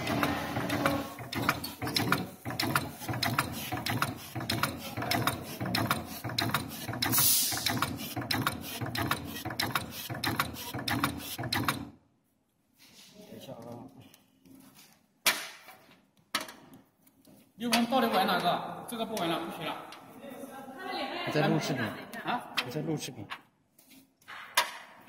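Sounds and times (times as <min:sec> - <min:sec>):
machine sharp clicks: 0:00.1 - 0:11.9
brief hiss: 0:07.2 - 0:07.7.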